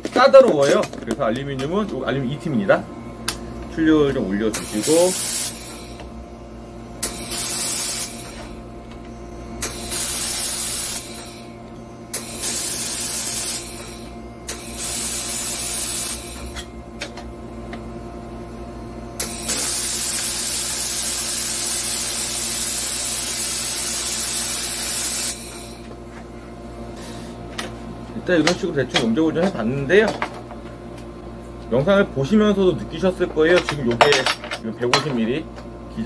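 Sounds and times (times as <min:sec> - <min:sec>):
steady machine hum: 0:00.0 - 0:36.0
laser welder hissing bursts: 0:03.8 - 0:06.1, 0:07.0 - 0:08.7, 0:09.6 - 0:16.7, 0:19.1 - 0:25.9
welder click: 0:07.0 - 0:08.5, 0:09.6 - 0:11.3, 0:19.2 - 0:25.6.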